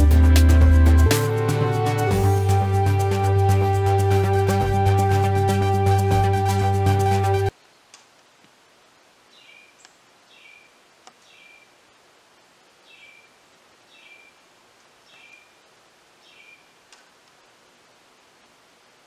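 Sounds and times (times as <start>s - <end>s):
soft steady hiss: 7.5s - 19.0s.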